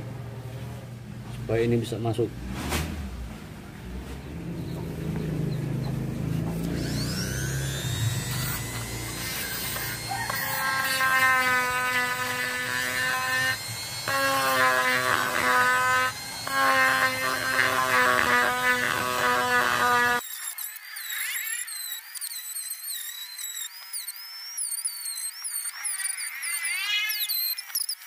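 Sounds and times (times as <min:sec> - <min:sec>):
rotary tool grinding: 0:06.0 - 0:28.0.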